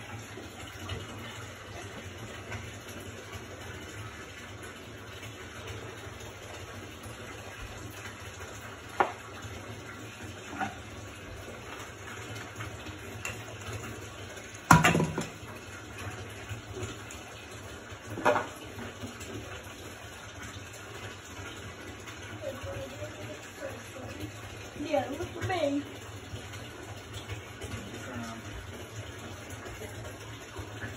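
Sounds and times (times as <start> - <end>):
plastic jugs hollow knocks: 14.7 - 15.4.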